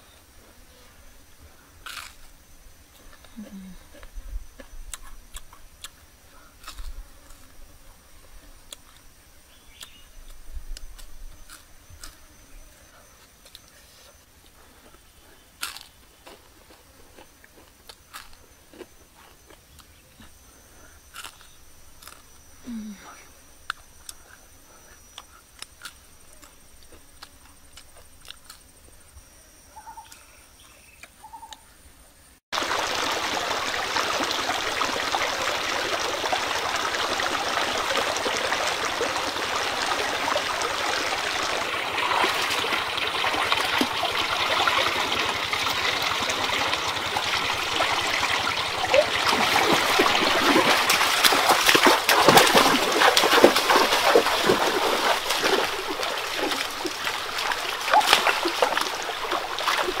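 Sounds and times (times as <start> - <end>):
stream running over rocks: 32.5 - 60.0
hand splashing in water: 48.8 - 60.0.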